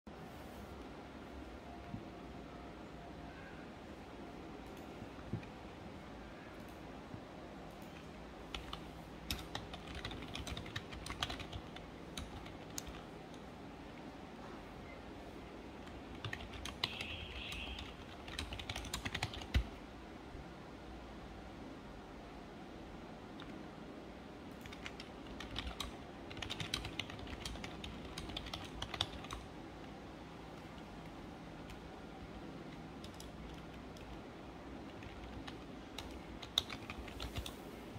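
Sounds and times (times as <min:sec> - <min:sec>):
keyboard typing clicks: 0:07.7 - 0:13.4, 0:15.8 - 0:19.7, 0:24.6 - 0:29.5, 0:32.7 - 0:34.2, 0:34.9 - 0:37.6.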